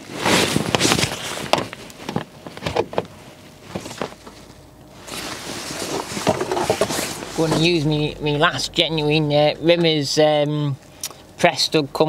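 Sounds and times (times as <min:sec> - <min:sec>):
plastic rustling: 0:00.0 - 0:07.8.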